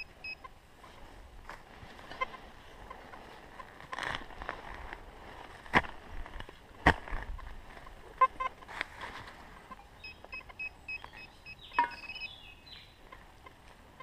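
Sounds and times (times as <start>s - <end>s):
metal detector beeps: 0.0s - 0.5s, 9.7s - 12.5s.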